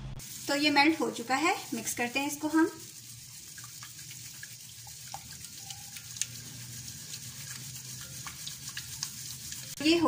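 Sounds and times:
whisk swishing liquid: 0:00.3 - 0:10.0
whisk clicking against glass bowl: 0:03.4 - 0:09.8.

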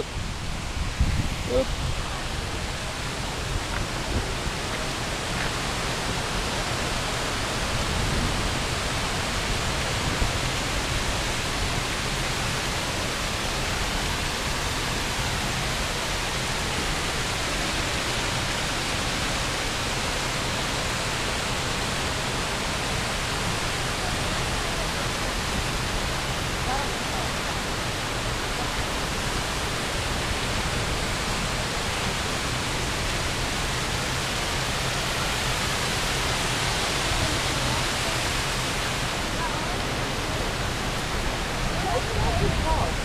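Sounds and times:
wind buffeting microphone: 0:00.0 - 0:06.4, 0:39.0 - 0:43.0
water rushing down spillway: 0:00.0 - 0:43.0.

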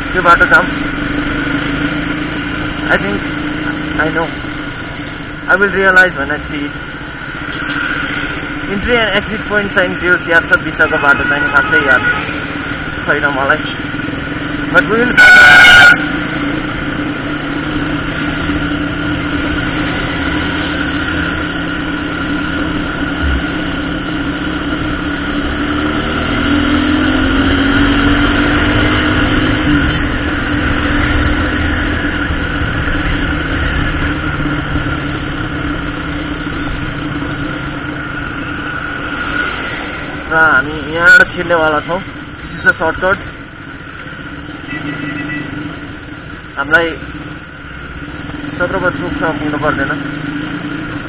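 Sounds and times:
motorcycle engine running: 0:11.4 - 0:41.2
horn beep: 0:15.0 - 0:16.0, 0:44.6 - 0:45.6.

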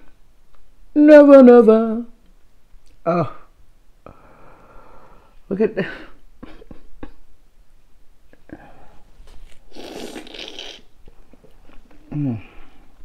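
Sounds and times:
loud slurp: 0:09.4 - 0:10.9.

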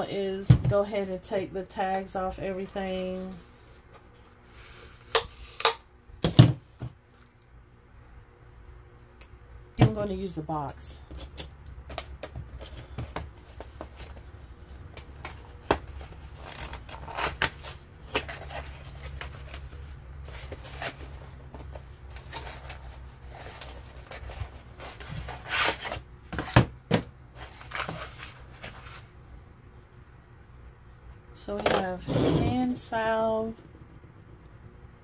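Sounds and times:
faint low hum: 0:00.0 - 0:35.0
cardboard and plastic rustling: 0:11.1 - 0:29.2.

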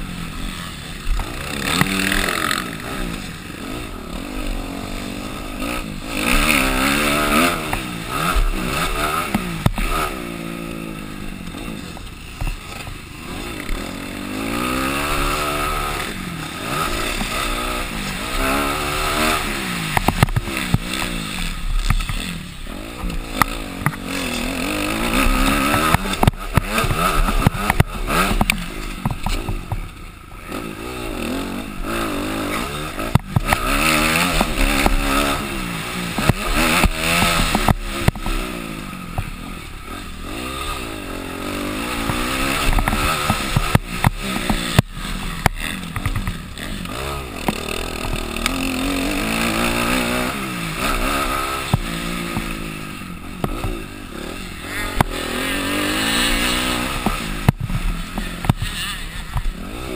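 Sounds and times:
dirt bike engine revving: 0:00.0 - 0:59.9
bike knocks and clatter: 0:07.6 - 0:10.1, 0:19.9 - 0:22.3, 0:25.1 - 0:30.0, 0:36.1 - 0:38.4, 0:42.0 - 0:48.6, 0:53.3 - 0:53.9, 0:56.8 - 0:59.6.

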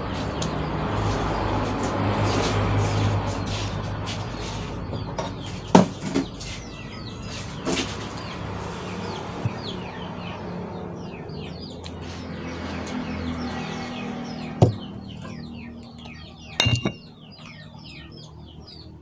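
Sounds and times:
small birds chirping: 0:00.0 - 0:19.0
tableware knocking on table: 0:16.6 - 0:17.0.

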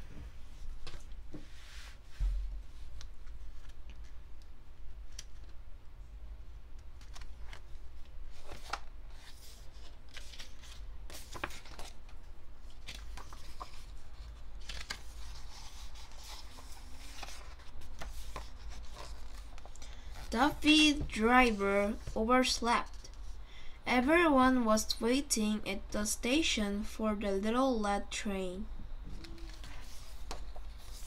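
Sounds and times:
page rustling: 0:02.8 - 0:04.2, 0:07.0 - 0:20.3, 0:29.2 - 0:31.0
paper pages turning: 0:03.0 - 0:05.6, 0:07.0 - 0:20.4, 0:29.2 - 0:31.0.

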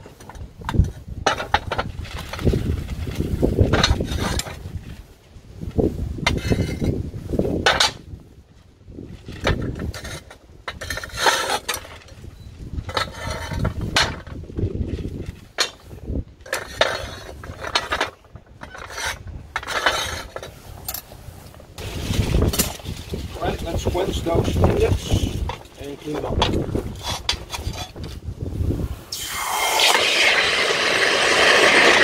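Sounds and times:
metal clanks and scrapes: 0:00.0 - 0:04.8, 0:06.2 - 0:07.0, 0:07.6 - 0:08.1, 0:09.2 - 0:28.2.

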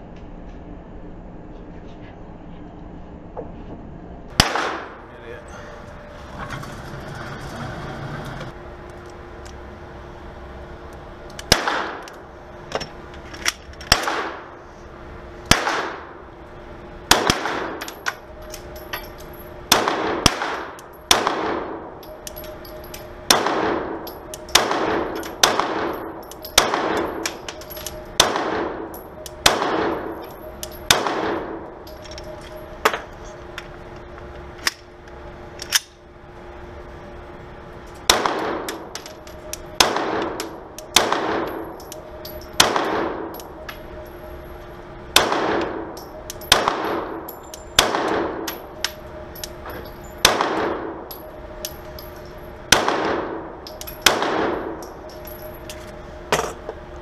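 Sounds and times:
pistol shots echoing indoors: 0:04.3 - 0:05.0, 0:11.5 - 0:12.2, 0:13.9 - 0:14.5, 0:15.5 - 0:16.2, 0:17.1 - 0:18.0, 0:19.7 - 0:32.6, 0:38.1 - 0:43.6, 0:45.1 - 0:51.7, 0:52.7 - 0:55.0.

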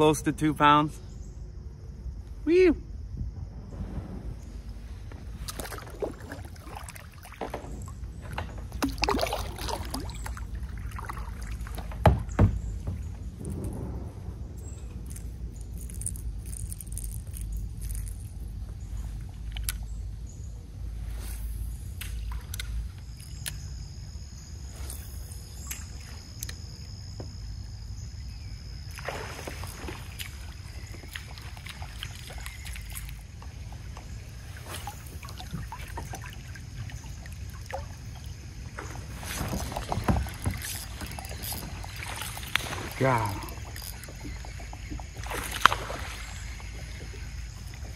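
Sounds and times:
low rumble: 0:01.2 - 0:06.5, 0:12.6 - 0:21.9
water lapping against kayak hull: 0:03.2 - 0:24.5, 0:25.2 - 0:47.9
fishing gear clicks: 0:15.0 - 0:19.9, 0:39.3 - 0:44.6
rush of water: 0:28.9 - 0:47.9.

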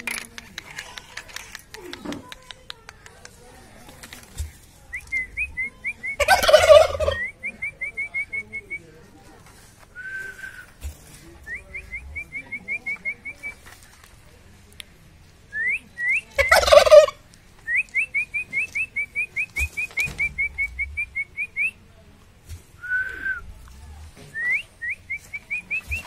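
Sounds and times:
turkey gobbling: 0:05.4 - 0:07.8, 0:16.4 - 0:17.2, 0:18.3 - 0:21.6
person whistling chirps: 0:22.8 - 0:23.4.

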